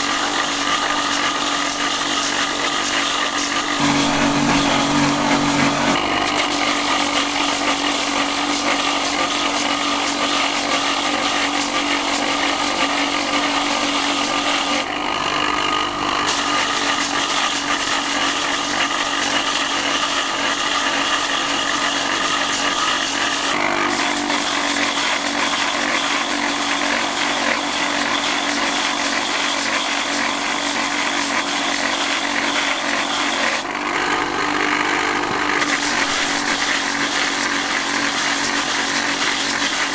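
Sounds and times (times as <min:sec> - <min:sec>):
grinding wheel scraping husk: 0:00.0 - 0:39.9
electric motor whirring: 0:00.2 - 0:08.6.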